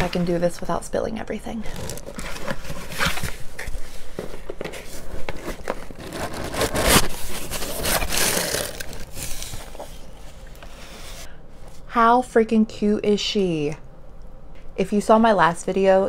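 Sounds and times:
paper filler crinkling: 1.7 - 10.0
cardboard box flaps scraping: 4.8 - 9.8.

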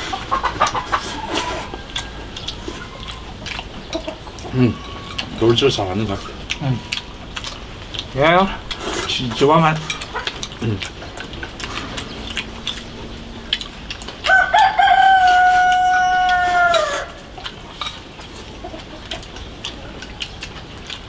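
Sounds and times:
rooster crowing: 0.9 - 3.3, 14.2 - 17.3.

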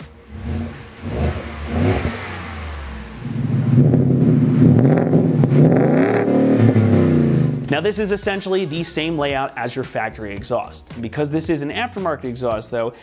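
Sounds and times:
truck engine revving: 0.0 - 8.0.

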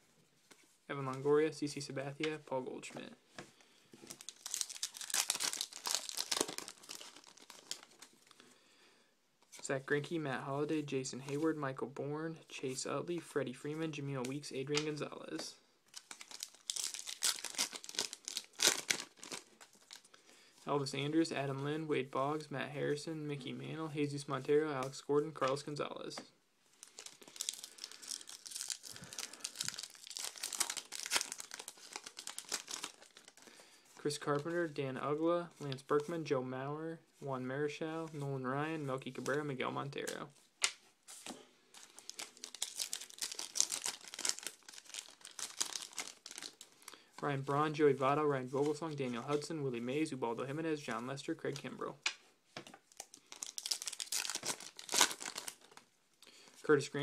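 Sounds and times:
plastic wrapper crinkling and tearing: 4.0 - 8.4, 15.9 - 20.3, 26.7 - 34.5, 39.1 - 47.2, 51.5 - 56.2.

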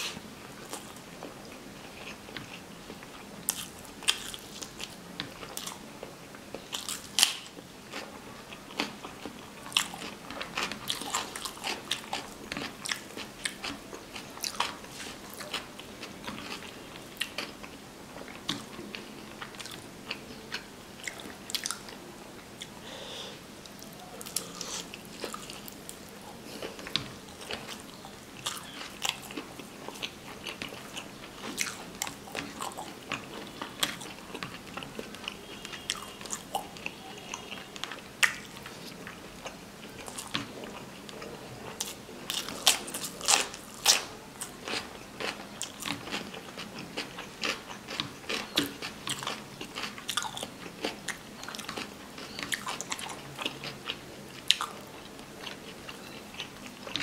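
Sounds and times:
wet chewing with smacks: 26.5 - 57.0.

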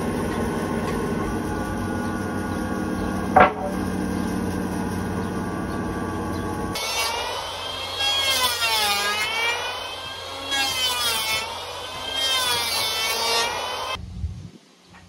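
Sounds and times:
low hum: 0.0 - 8.1.

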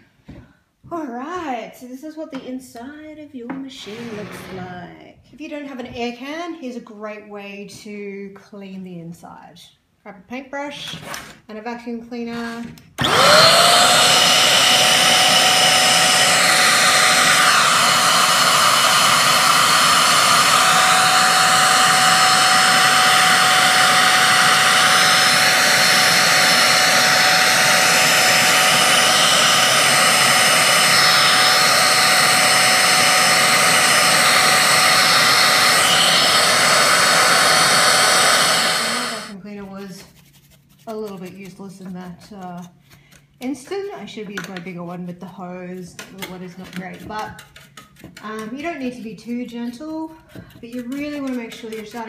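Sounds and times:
handheld vacuum cleaner whining: 13.0 - 39.4.

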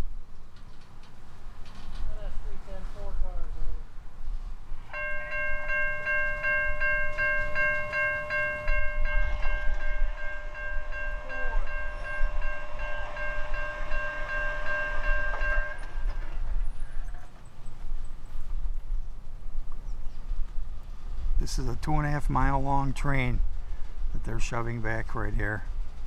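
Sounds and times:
freight train rumbling: 0.0 - 26.0
crossing warning bell ringing: 4.9 - 17.4.

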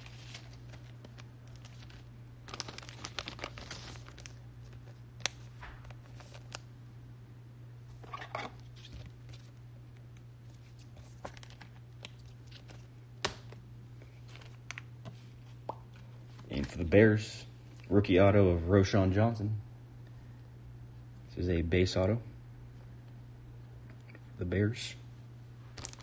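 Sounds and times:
card packaging crinkling: 0.0 - 6.7, 10.4 - 14.9, 25.8 - 26.0
low electrical hum: 0.0 - 26.0.

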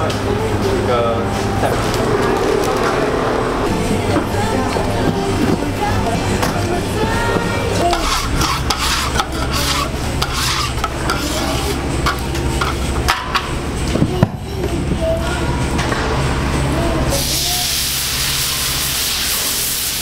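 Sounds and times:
steady low hum: 0.0 - 20.0
metal scraper scraping griddle: 7.8 - 12.9.

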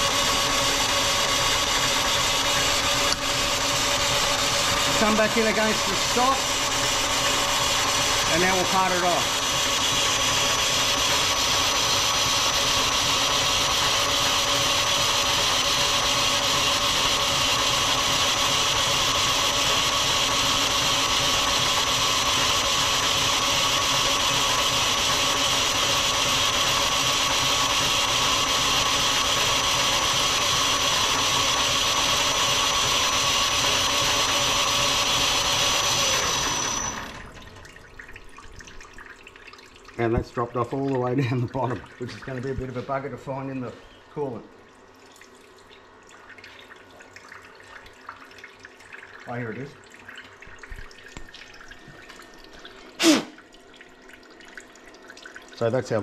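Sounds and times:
tool cutting metal: 0.0 - 37.2, 53.0 - 53.4
metal lathe whining: 0.0 - 37.4.

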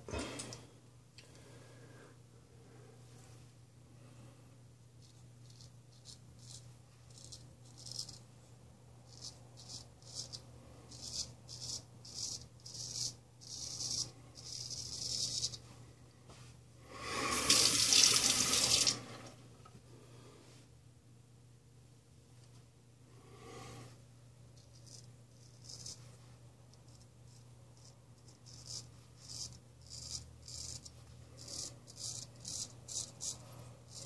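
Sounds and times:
straight razor scraping stubble: 27.8 - 34.0.

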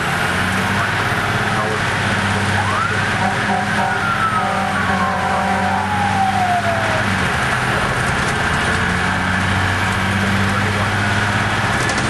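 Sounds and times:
diesel truck engine running: 0.0 - 12.0
fire engine siren winding down: 2.3 - 7.3.

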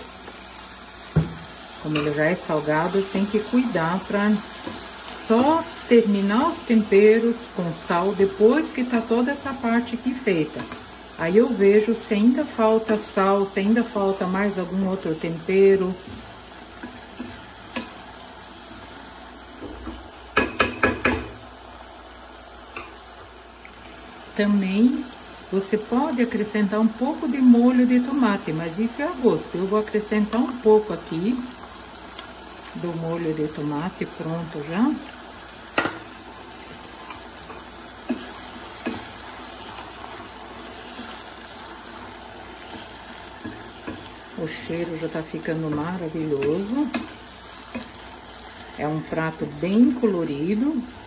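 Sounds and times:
vegetables sizzling in a frying pan: 0.0 - 51.0
wooden spoon striking pan: 19.7 - 21.4.

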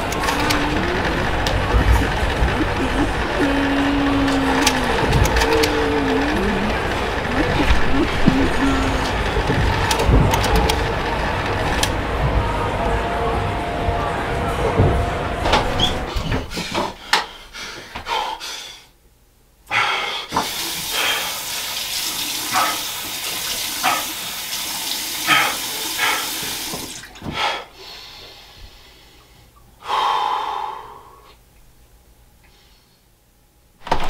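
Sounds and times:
loud breathy burst: 29.8 - 31.4.

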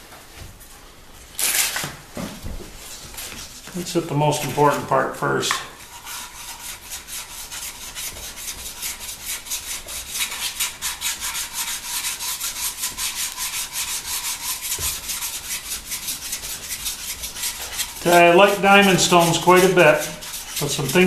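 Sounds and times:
sharpening stone rasping on metal: 5.7 - 21.0.

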